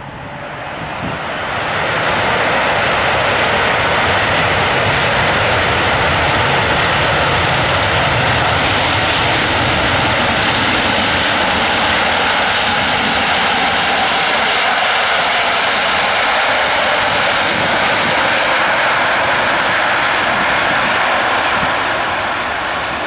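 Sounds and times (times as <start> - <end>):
jet engines roaring: 0.0 - 23.0.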